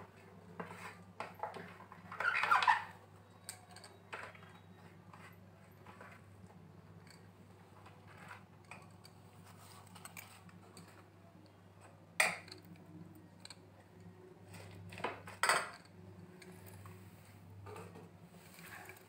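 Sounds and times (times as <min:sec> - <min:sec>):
stirring in a steel bowl: 0:00.6 - 0:11.2.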